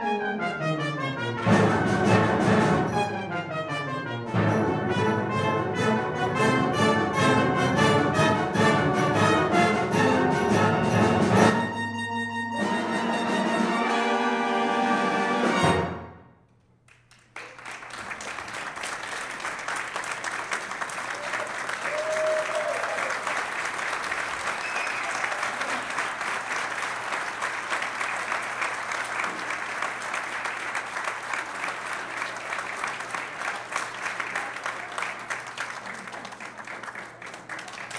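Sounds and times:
audience applauding: 16.8 - 37.9.

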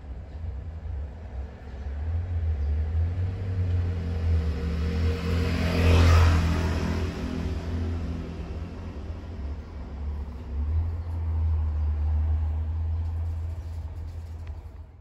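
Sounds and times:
vehicle engine passing by: 1.6 - 15.0.

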